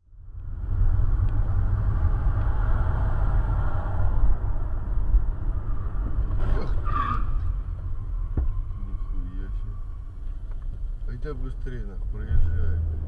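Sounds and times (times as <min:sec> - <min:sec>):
car road and engine rumble: 0:00.0 - 0:13.0
vehicles colliding crash: 0:06.0 - 0:08.6.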